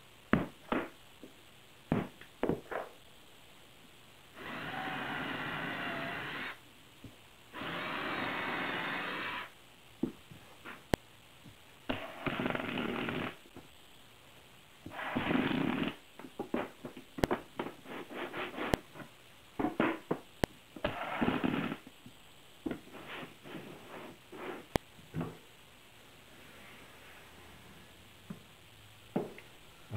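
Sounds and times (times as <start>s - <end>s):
cordless drill driving screws: 4.4s - 6.6s, 7.6s - 9.5s.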